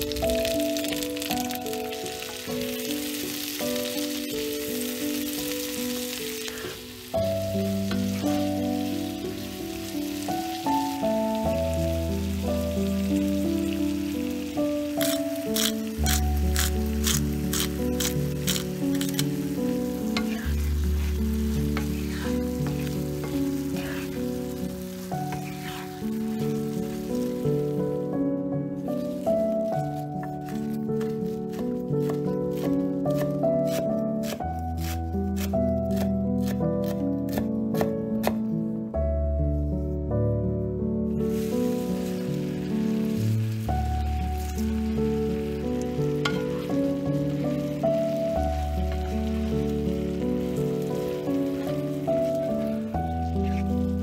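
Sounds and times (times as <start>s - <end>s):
tomatoes sizzling in a frying pan: 0.0s - 36.0s, 41.2s - 54.0s
background music: 0.0s - 54.0s
wooden spatula scraping pan: 20.2s - 24.2s, 25.3s - 26.0s.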